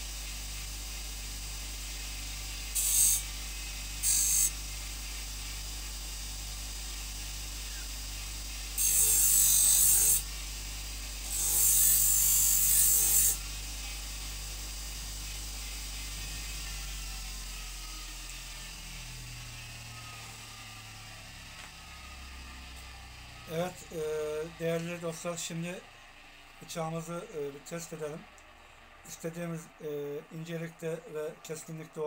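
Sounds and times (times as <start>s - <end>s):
knife hissing on buffing wheel: 0.0s - 26.2s
bench grinder hum: 0.0s - 32.0s.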